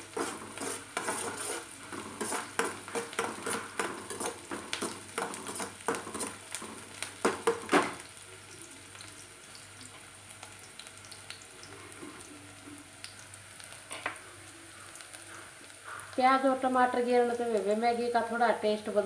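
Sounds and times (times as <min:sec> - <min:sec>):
metal spatula scraping a pan: 0:00.0 - 0:06.4
noodles sizzling: 0:00.0 - 0:19.0.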